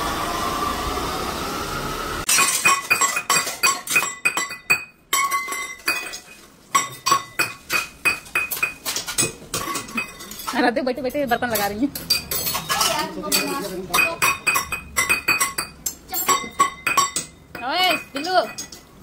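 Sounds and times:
scooter and street noise: 0.0s - 2.3s
metal dishes clattering: 2.3s - 19.0s.

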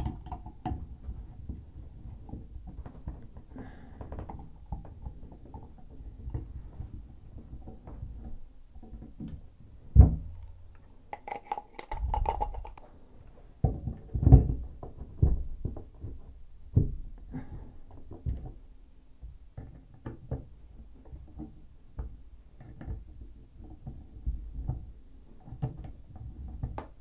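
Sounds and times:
small metal clicks and scrapes: 11.2s - 12.8s.

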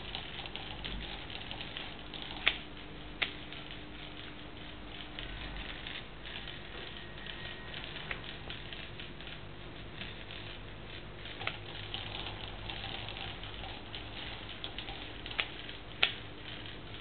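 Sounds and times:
small clicks: 0.0s - 17.0s
small electric toy motor running: 5.0s - 9.4s.

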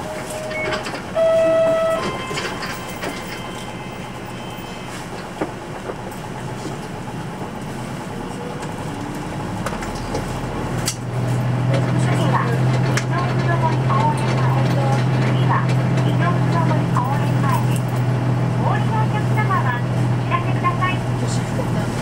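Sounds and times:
short electronic chime: 0.0s - 3.6s
bus diesel engine: 0.0s - 22.0s.

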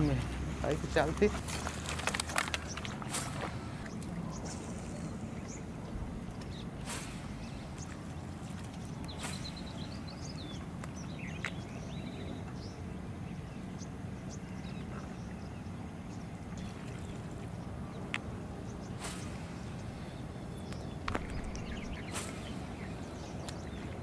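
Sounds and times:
steady low rumble: 0.0s - 12.0s, 16.6s - 24.0s
small birds chirping: 0.0s - 24.0s.

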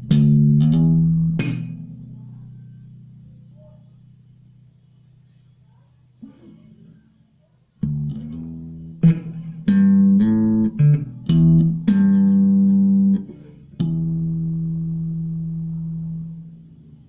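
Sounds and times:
slap bass guitar: 0.0s - 3.5s, 7.8s - 17.0s.

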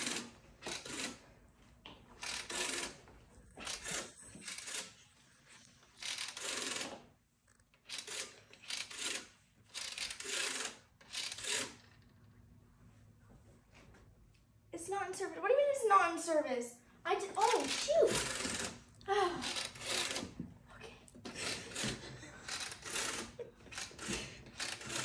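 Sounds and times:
rotary phone dial whirring: 0.0s - 1.3s, 2.2s - 12.3s, 17.5s - 20.5s, 21.2s - 25.0s.

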